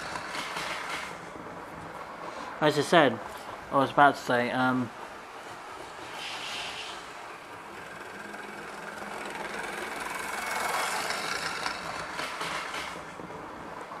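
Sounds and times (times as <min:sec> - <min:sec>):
wheels clunking on rails: 0:00.0 - 0:02.0, 0:05.0 - 0:14.0
model train motor whirring: 0:06.0 - 0:13.2.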